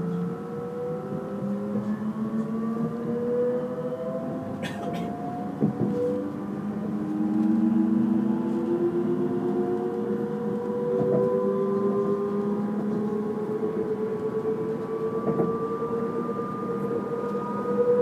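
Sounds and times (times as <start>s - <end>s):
wheels rumbling on rail: 0.0s - 18.0s.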